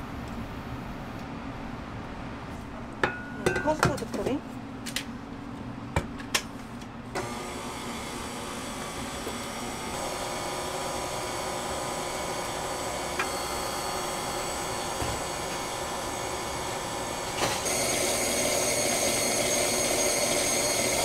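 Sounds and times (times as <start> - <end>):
stand mixer whisking batter: 7.2 - 21.0.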